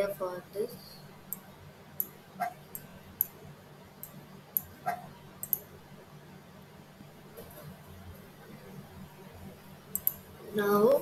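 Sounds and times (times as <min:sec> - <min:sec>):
computer mouse clicking: 0:05.4 - 0:05.7, 0:09.9 - 0:10.2.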